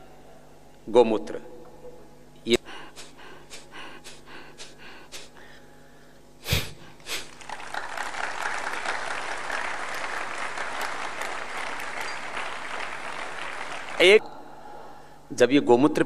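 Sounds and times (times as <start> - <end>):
audience applauding: 7.2 - 14.2.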